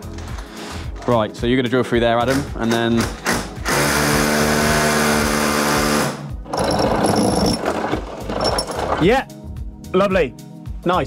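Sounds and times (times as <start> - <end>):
rotary hammer drilling brick: 3.2 - 9.0.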